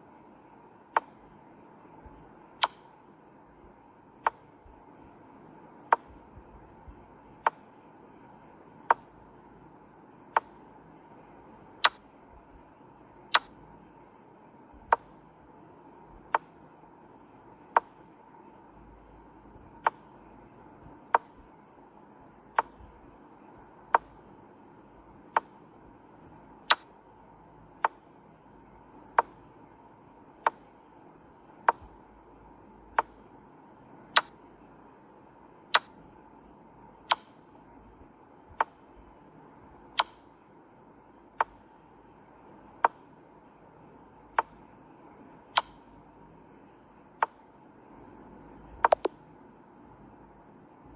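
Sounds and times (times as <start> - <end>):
chess move clicks: 1.0 - 1.2, 2.6 - 2.9, 5.9 - 6.2, 7.4 - 7.7, 8.9 - 9.1, 10.4 - 10.6, 11.8 - 12.0, 13.3 - 13.5, 16.3 - 16.6, 29.2 - 29.4, 30.4 - 30.7, 31.6 - 31.9, 34.2 - 34.4, 37.1 - 37.4, 40.0 - 40.3, 45.6 - 45.8, 48.8 - 49.2.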